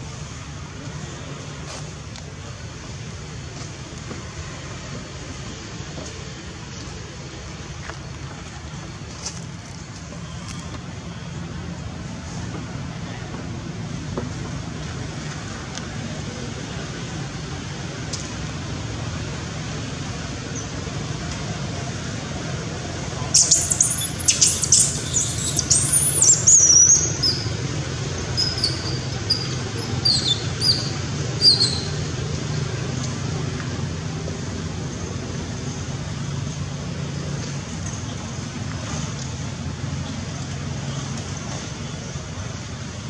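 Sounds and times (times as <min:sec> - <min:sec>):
macaques squealing and chirping: 0:23.4 - 0:27.5, 0:28.2 - 0:31.9.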